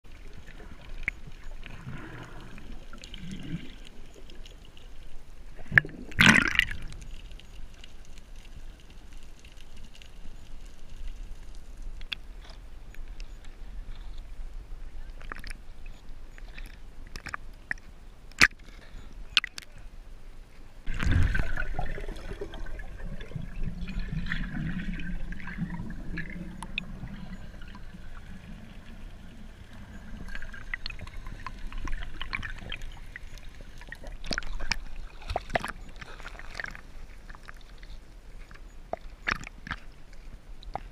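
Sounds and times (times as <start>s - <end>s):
small waves lapping and sloshing: 13.4s - 40.9s
loud splash: 20.9s - 22.8s
muffled underwater gurgling: 20.9s - 36.8s.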